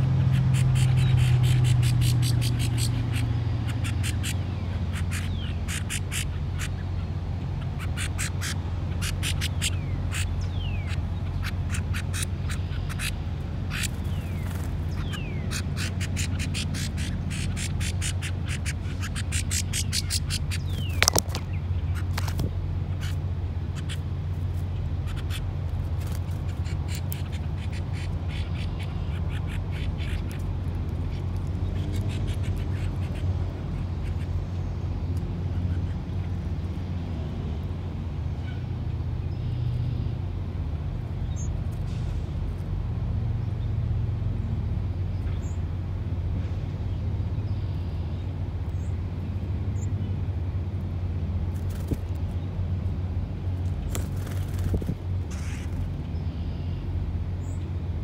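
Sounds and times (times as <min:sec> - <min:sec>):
low outdoor rumble: 0:00.0 - 0:58.0
faint bird chirps: 0:39.3 - 0:40.2, 0:55.3 - 0:57.6.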